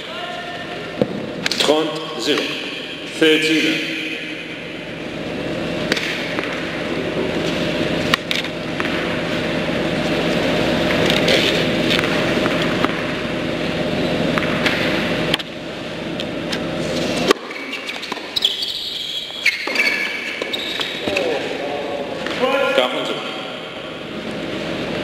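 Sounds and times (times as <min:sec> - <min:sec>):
low buzzing hum: 0:00.0 - 0:25.0
tennis balls struck: 0:05.8 - 0:06.8, 0:11.9 - 0:13.2, 0:14.2 - 0:15.5
shoes squeaking on hard court: 0:16.5 - 0:21.4.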